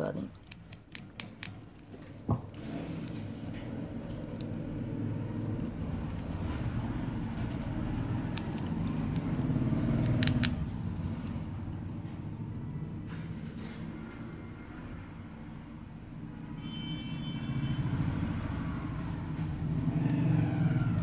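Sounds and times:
screwdriver clicking on small screws: 0.3s - 3.2s, 7.4s - 12.0s.

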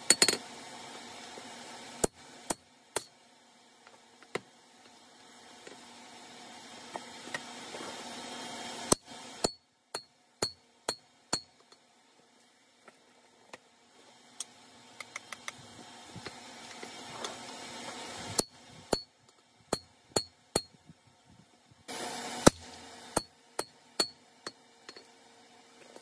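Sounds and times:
hammer striking hot steel: 2.0s - 3.2s, 8.9s - 11.8s, 18.4s - 20.8s, 22.3s - 25.0s
hiss: 21.8s - 23.3s.

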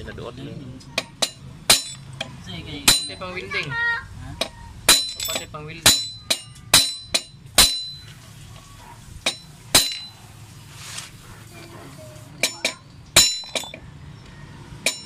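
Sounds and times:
hammer striking steel punch: 1.0s - 2.0s, 2.9s - 3.2s, 4.9s - 8.0s, 9.3s - 10.1s.

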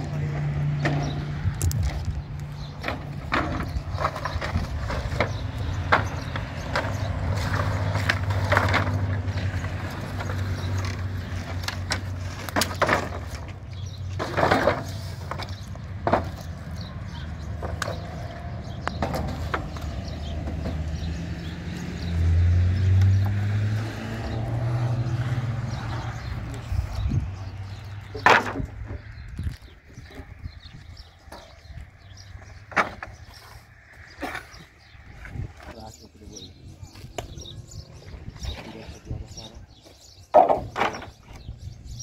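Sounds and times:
knocks and clatter: 0.0s - 16.8s, 17.4s - 21.1s, 27.8s - 30.4s, 40.3s - 41.4s.

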